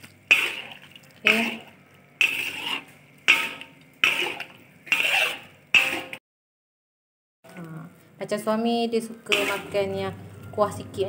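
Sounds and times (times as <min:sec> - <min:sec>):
utensil scraping in a wok: 0:00.0 - 0:06.2, 0:09.3 - 0:11.0.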